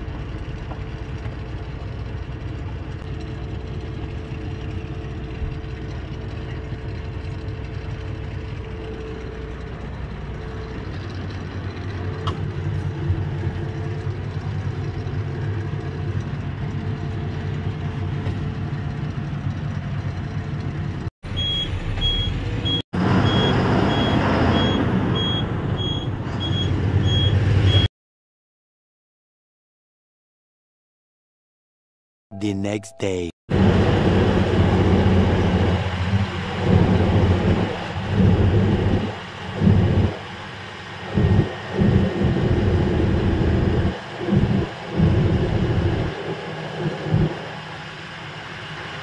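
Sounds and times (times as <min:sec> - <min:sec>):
lorry engine drone: 0:00.0 - 0:21.1, 0:32.3 - 0:49.0
road traffic noise: 0:00.0 - 0:27.9, 0:33.5 - 0:49.0
high-pitched beeps: 0:32.3 - 0:33.3.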